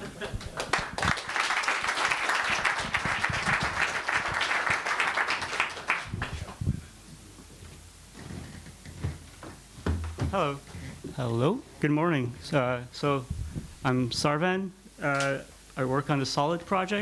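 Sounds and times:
audience applauding: 0.0 - 6.6
microphone knocking against stand: 9.0 - 10.4.

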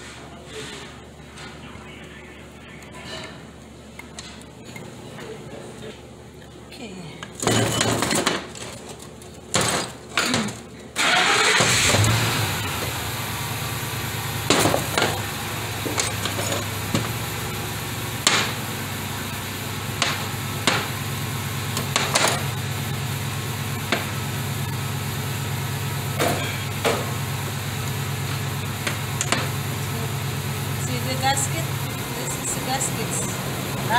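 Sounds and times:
engine idling hum: 11.3 - 33.9.

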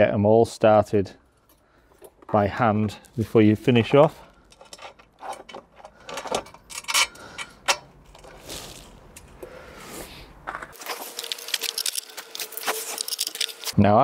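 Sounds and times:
metal screws clinking: 4.2 - 9.4, 10.8 - 13.8.

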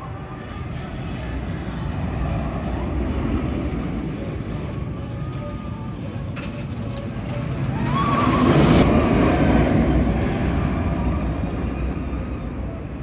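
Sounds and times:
roller coaster train rushing past: 0.0 - 13.0.

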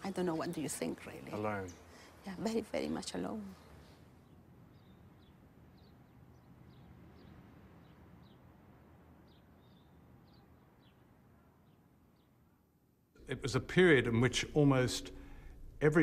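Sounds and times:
small bird chirping: 3.5 - 8.6
low rumble: 13.2 - 16.0.

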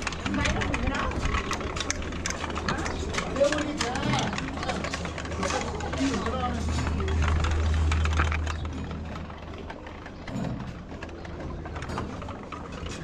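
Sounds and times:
clicks and knocks: 0.0 - 13.0
metal prayer wheels spinning: 0.0 - 13.0
low rumble: 6.2 - 11.1.

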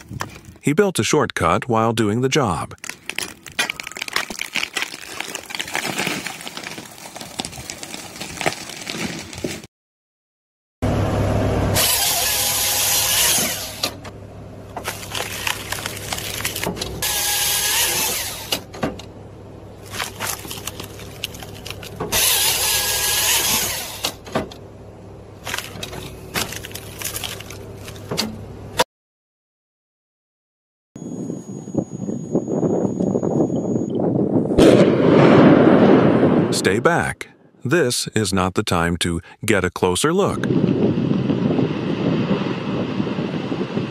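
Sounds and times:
wood knocking and cracking: 2.8 - 9.6
loader engine running: 10.8 - 28.8
chainsaw cutting log: 11.7 - 14.0, 14.8 - 18.7, 19.9 - 24.2.

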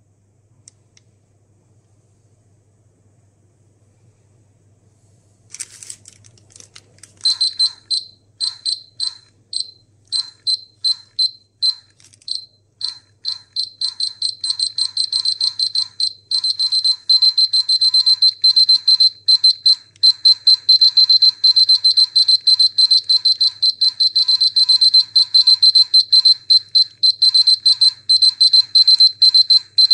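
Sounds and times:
dosimeter high-pitched beeps: 7.2 - 29.9.

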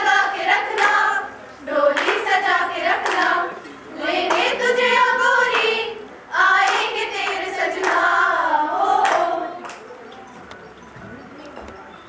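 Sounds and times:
young women singing together: 0.0 - 9.7
hand claps: 0.2 - 1.0, 1.9 - 2.3, 2.9 - 3.3, 4.3 - 4.6, 6.6 - 8.1, 9.0 - 9.9.

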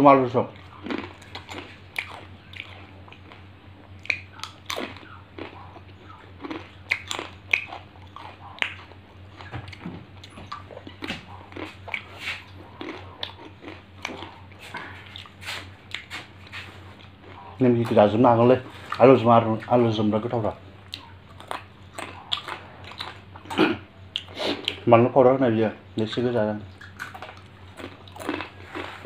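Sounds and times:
person crunching crisp snack: 0.6 - 9.5, 10.2 - 17.6, 26.8 - 29.0.

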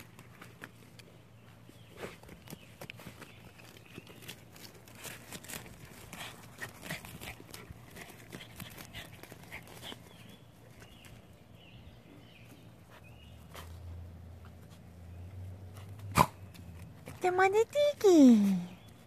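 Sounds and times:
dogs scratching in dirt: 0.0 - 19.0.

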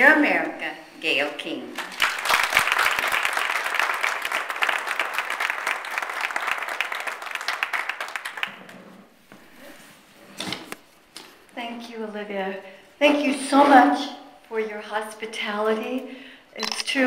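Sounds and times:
audience applauding: 1.8 - 8.8.

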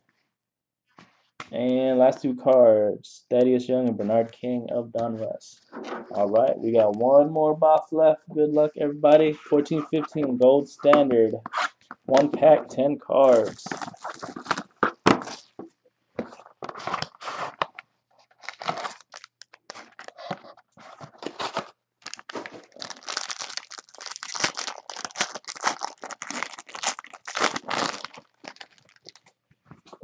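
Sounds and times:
foil wrapper tearing and crinkling: 13.3 - 15.5, 18.3 - 20.3, 21.2 - 29.3.

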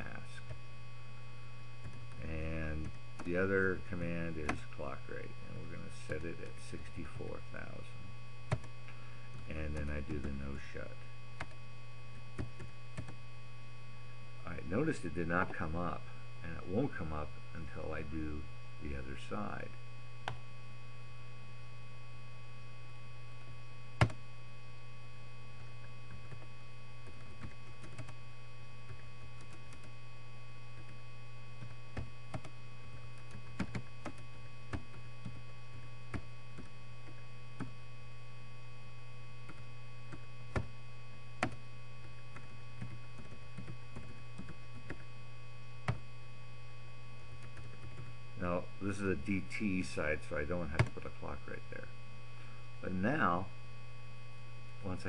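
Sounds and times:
steady electrical hum: 0.0 - 55.0
keyboard typing: 1.8 - 2.2, 8.5 - 8.7, 12.4 - 13.2, 24.0 - 24.2, 25.6 - 28.2, 28.9 - 29.9, 31.6 - 35.4, 41.4 - 45.1, 47.3 - 48.1.

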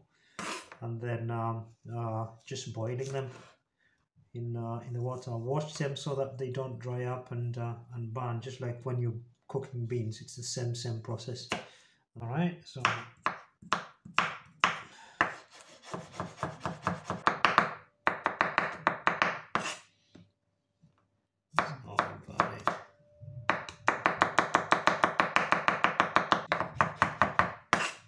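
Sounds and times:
knife chopping on wooden board: 12.8 - 19.8, 23.5 - 28.0.

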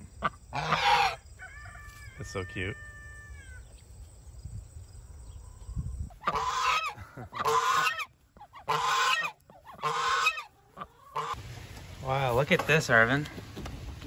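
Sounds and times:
goose honking: 0.2 - 1.2, 6.2 - 11.4.

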